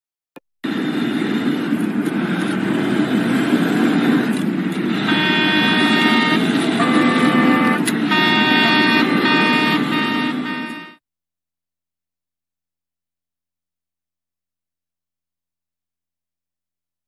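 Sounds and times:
truck engine and road rumble: 0.6s - 11.0s
vehicle horn blasts: 4.9s - 11.0s.

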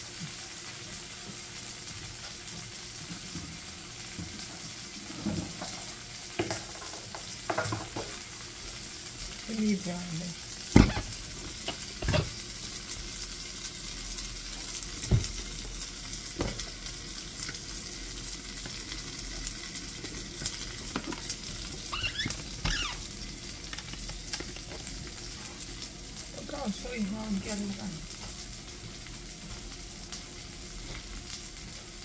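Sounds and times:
onions sizzling in a pot: 0.0s - 32.0s
short squeak: 21.9s - 23.0s.

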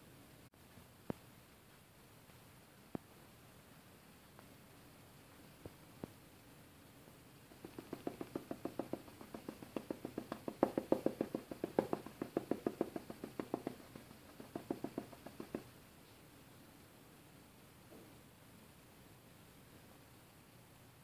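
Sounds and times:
paintbrush dabbing on surface: 7.5s - 15.8s.

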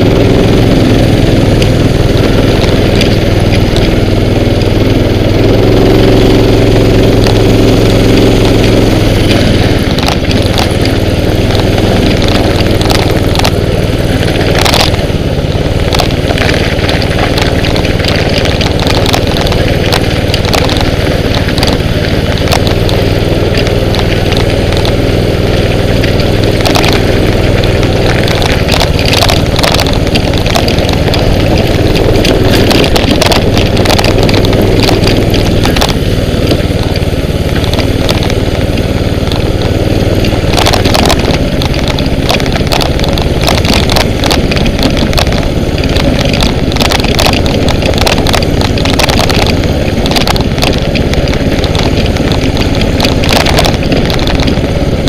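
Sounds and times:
small bike engine running: 0.0s - 55.0s
knocks and rattles: 6.9s - 55.0s.

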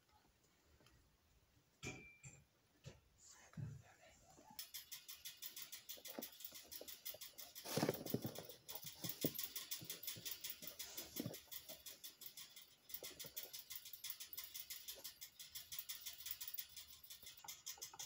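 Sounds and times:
rat claws clicking: 4.6s - 18.0s.

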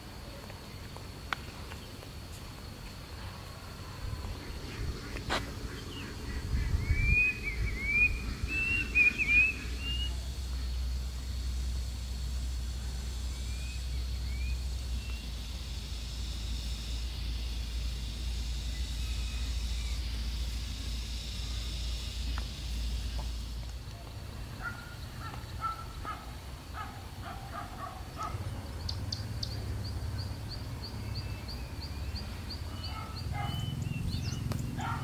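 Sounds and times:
steady low rumble: 2.9s - 35.0s
bird chirping: 4.3s - 10.8s, 26.8s - 35.0s.

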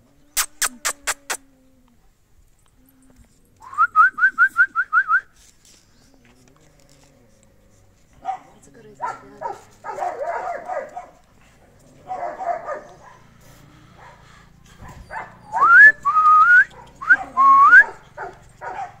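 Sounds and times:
puppies high whines: 11.8s - 19.0s.

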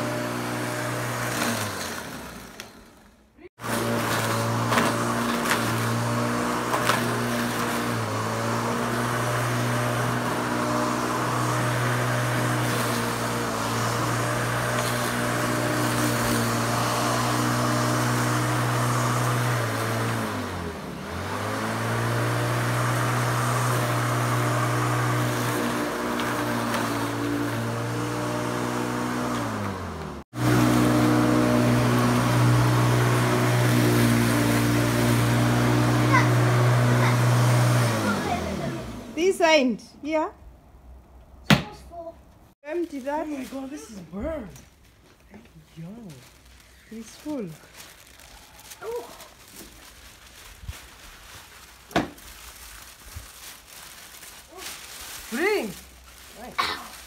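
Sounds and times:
electric lawnmower cutting grass: 0.0s - 39.3s.

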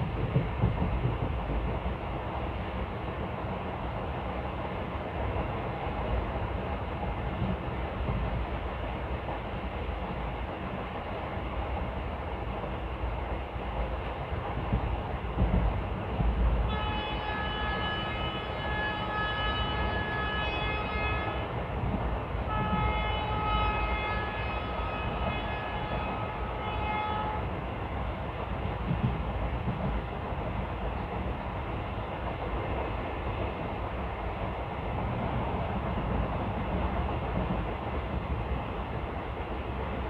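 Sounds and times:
heavy thumps of train: 0.0s - 40.0s
train rumbling on track: 0.0s - 40.0s
locomotive air horn blasts: 16.7s - 21.5s, 22.5s - 27.5s.

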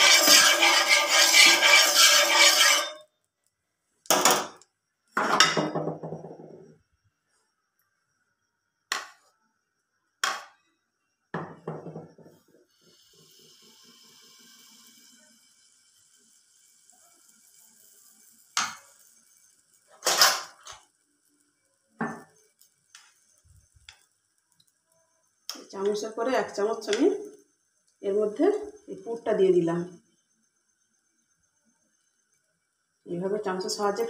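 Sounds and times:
batter sizzling in oil: 0.0s - 3.2s, 12.4s - 34.0s.

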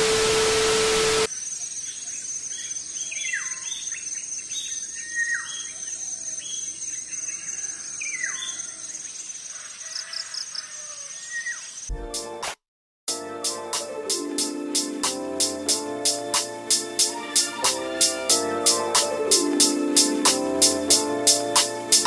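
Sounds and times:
steady high-pitched drone: 0.0s - 1.3s
tv static: 0.0s - 1.3s.

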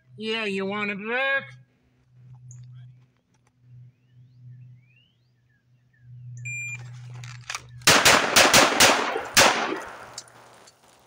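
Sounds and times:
shot timer beep: 6.4s - 6.8s
pistol shots: 7.8s - 10.4s.

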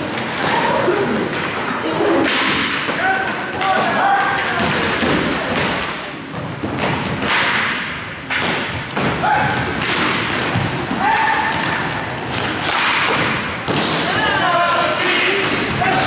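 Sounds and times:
sticks striking puck and floor: 2.2s - 16.0s.

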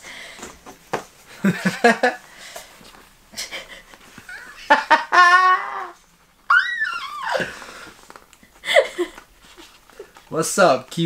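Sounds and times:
people laughing: 4.3s - 5.9s
high squeal sliding downward: 6.5s - 7.5s.

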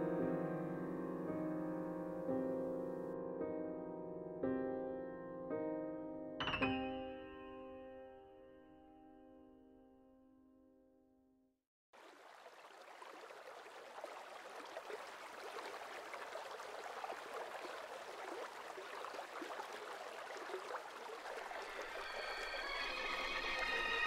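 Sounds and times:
river water lapping and splashing: 12.0s - 24.0s.

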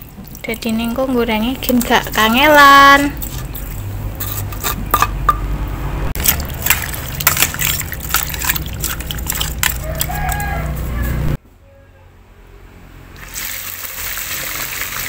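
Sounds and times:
wet squelches: 0.0s - 4.8s, 6.2s - 11.4s.

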